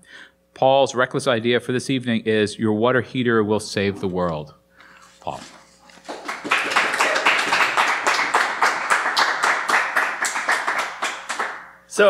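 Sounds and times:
audience applauding: 6.0s - 11.7s.

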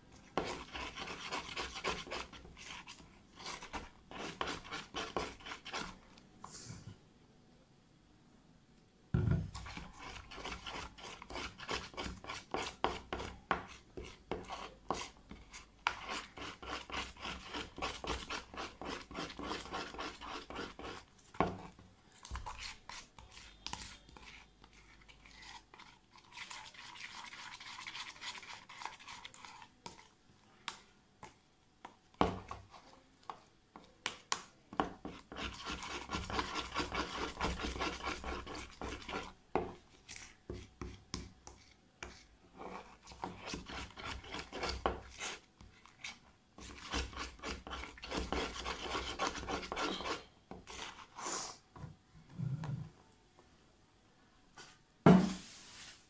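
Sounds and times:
utensil stirring and scraping slime: 0.0s - 6.3s, 9.4s - 51.6s.

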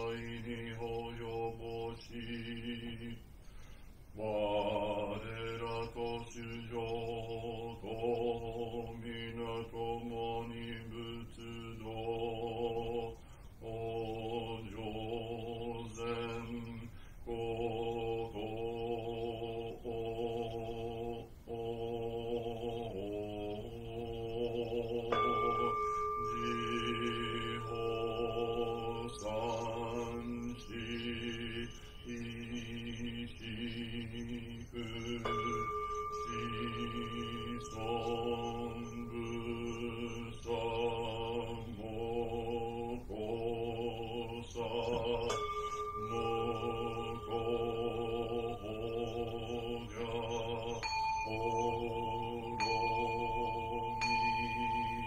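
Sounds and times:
man chanting in monotone: 0.0s - 3.2s, 4.2s - 55.0s
bowl bell ringing: 24.6s - 32.4s, 34.6s - 40.6s, 44.3s - 55.0s.

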